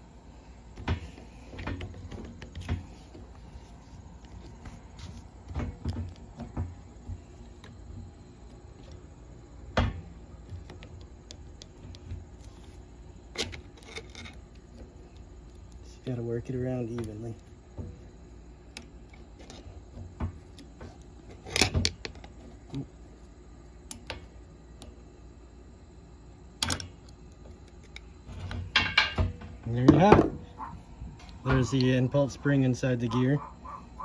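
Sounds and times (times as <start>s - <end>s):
metallic clicks and scrapes: 10.6s - 15.9s
screwdriver prying metal gear: 13.3s - 14.4s.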